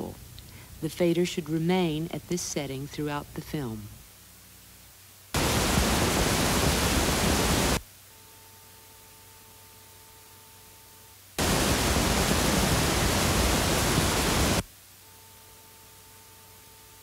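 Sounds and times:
faint steady tone: 0.0s - 17.0s
test noise signal hiss: 0.0s - 17.0s.

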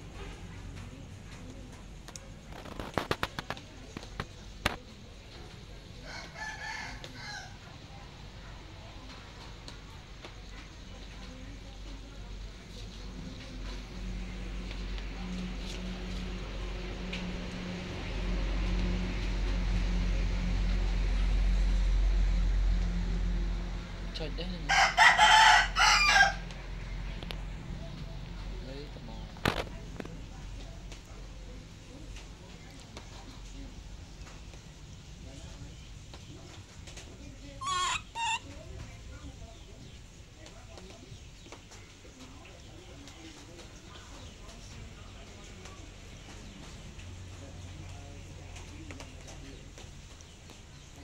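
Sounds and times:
rooster crowing: 6.0s - 7.6s, 24.7s - 26.5s, 37.6s - 38.4s.

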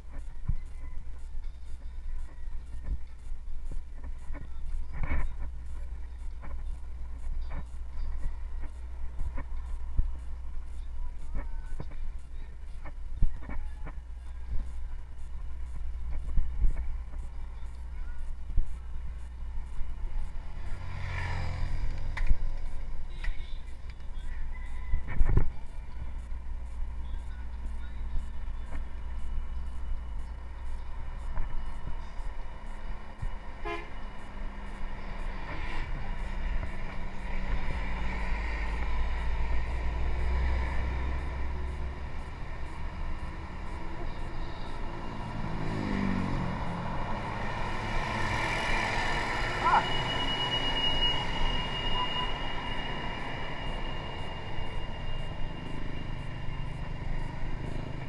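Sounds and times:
road traffic passing: 0.0s - 58.0s
truck and bus engines: 0.0s - 58.0s
wind rumbling on microphone: 24.0s - 27.0s
vehicle horn: 33.5s - 34.4s, 48.6s - 56.3s.

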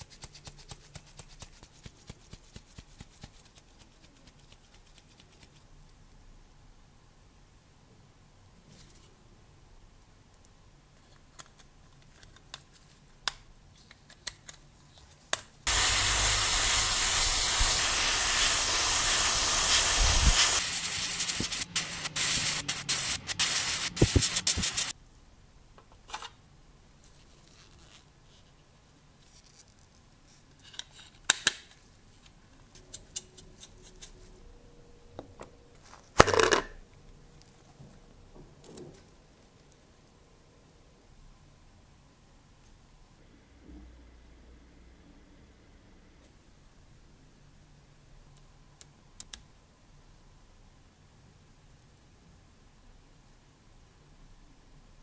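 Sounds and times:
airbrush spraying: 15.7s - 25.0s.

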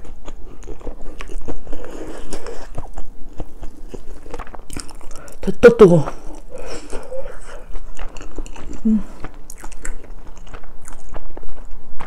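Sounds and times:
close chewing with mouth clicks: 0.0s - 12.0s
person humming: 8.8s - 9.2s.

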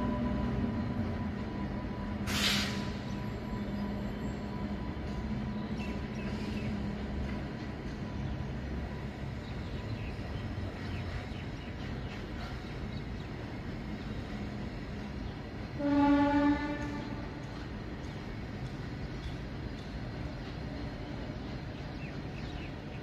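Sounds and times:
train wheels rumbling on rails: 0.0s - 23.0s
train horn blast: 15.7s - 17.4s.

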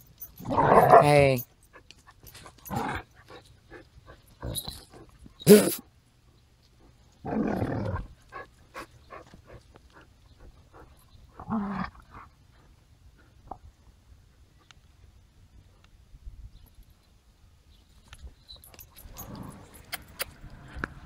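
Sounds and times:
dogs barking: 0.4s - 1.4s
dogs growling: 0.4s - 1.4s, 2.4s - 5.8s, 7.2s - 12.3s, 19.0s - 20.2s.

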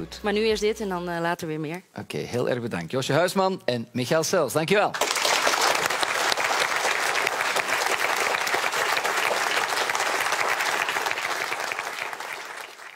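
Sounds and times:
audience applauding: 5.0s - 12.9s.

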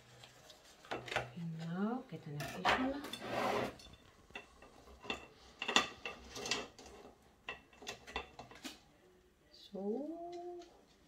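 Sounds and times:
short metallic scrape: 3.1s - 3.8s.

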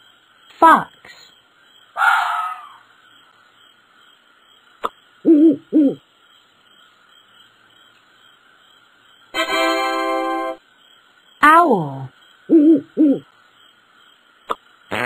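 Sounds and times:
owl hooting: 1.9s - 2.9s, 5.2s - 6.0s, 12.5s - 13.3s.

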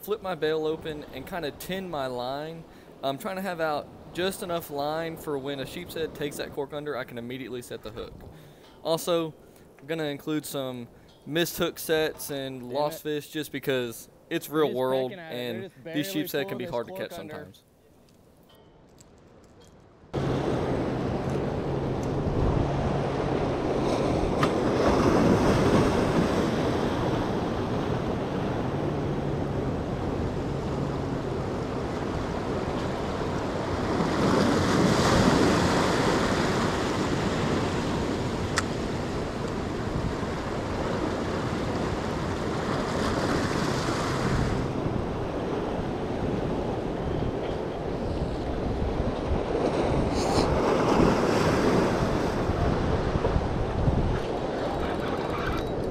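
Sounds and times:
wind buffeting microphone: 20.1s - 55.9s.

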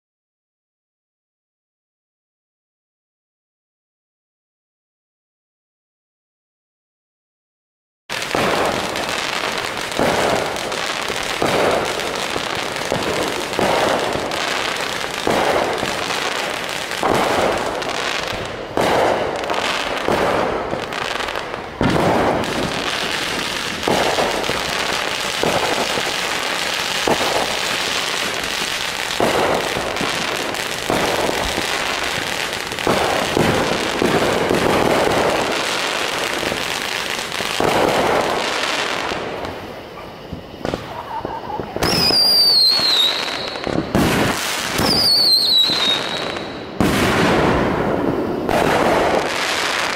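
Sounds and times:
firework bangs: 8.1s - 49.9s
firework crackling and hissing: 8.1s - 49.9s.

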